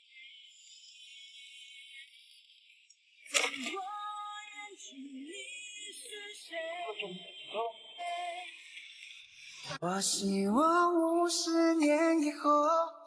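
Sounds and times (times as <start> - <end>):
woman singing pop song: 3.3 - 12.9.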